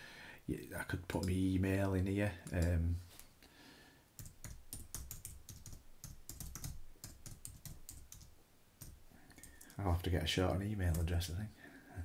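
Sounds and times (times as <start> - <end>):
typing on computer keyboard: 4.2 - 9.8.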